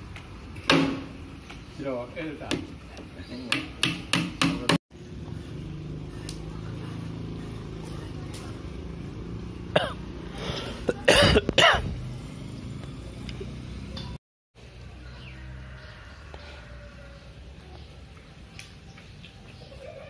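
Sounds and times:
person coughing: 0:09.8 - 0:10.0, 0:11.0 - 0:11.9.

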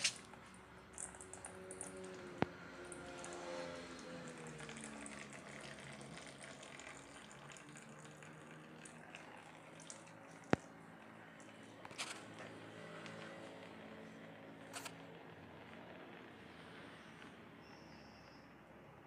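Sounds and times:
oil trickling: 0:00.0 - 0:11.8.

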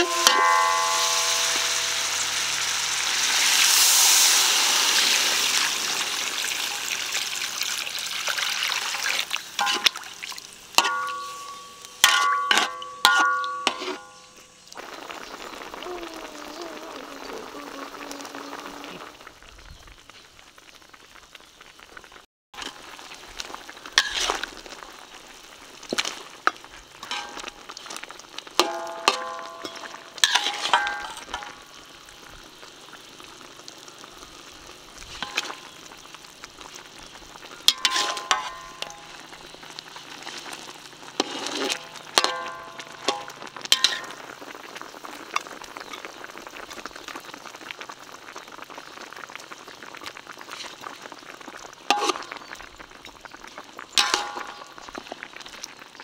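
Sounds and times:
metal utensil striking pan: 0:00.0 - 0:02.9, 0:09.6 - 0:10.0, 0:10.8 - 0:14.4, 0:27.0 - 0:27.6, 0:28.6 - 0:31.6, 0:35.2 - 0:35.6, 0:37.7 - 0:39.2, 0:41.2 - 0:44.2, 0:54.0 - 0:54.8
meat sizzling in a pan: 0:00.0 - 0:56.0.

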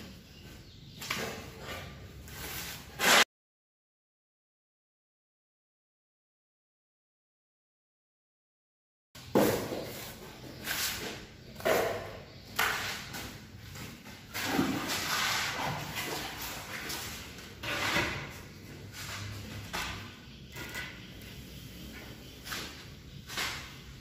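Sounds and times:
hand tool scraping mortar: 0:01.6 - 0:03.2.

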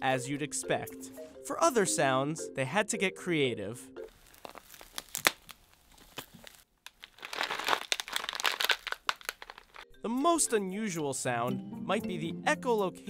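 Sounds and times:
celery stalks crunching: 0:04.1 - 0:09.8
crab legs cracking: 0:04.1 - 0:09.8.

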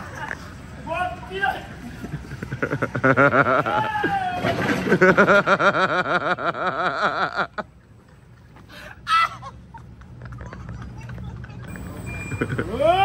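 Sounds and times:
man laughing hard: 0:02.2 - 0:04.1, 0:04.9 - 0:07.7, 0:12.4 - 0:13.0.

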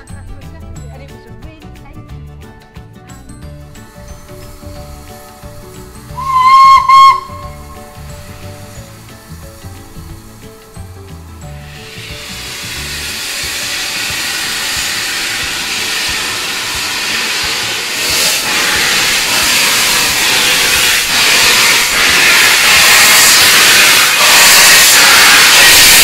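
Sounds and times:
steam locomotive hissing: 0:03.7 - 0:26.0.

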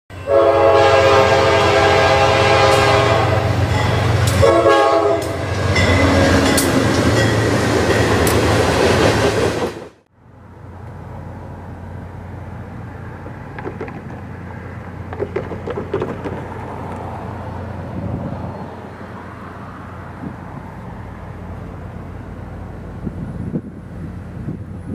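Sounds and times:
train horn: 0:00.1 - 0:06.7
distant train rumble: 0:00.1 - 0:24.9
locomotive engine noise: 0:00.2 - 0:24.9
train wheels clattering: 0:13.2 - 0:17.2.

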